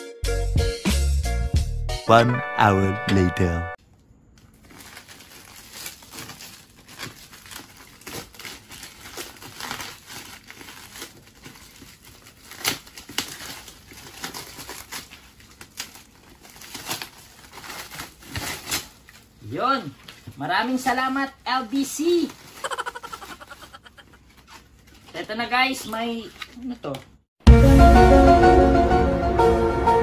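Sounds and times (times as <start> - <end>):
plastic wrapping crinkling: 4.3 - 20.4, 22.0 - 26.8.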